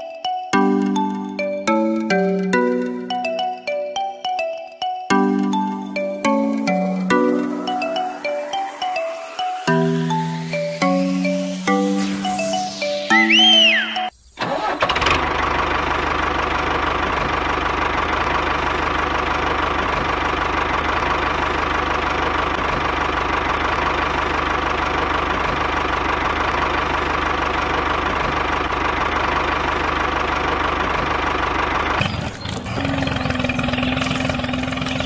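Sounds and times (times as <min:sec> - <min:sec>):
model tractor engine knocking: 0:14.6 - 0:35.0.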